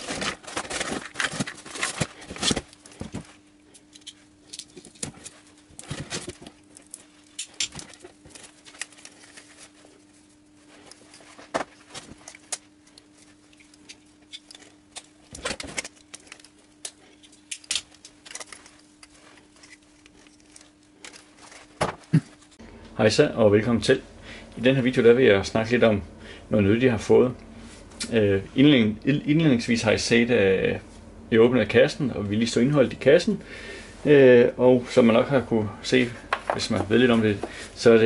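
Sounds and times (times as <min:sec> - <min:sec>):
rubber hoses handled in a box: 0:00.0 - 0:22.6
faint steady hum: 0:00.0 - 0:38.0.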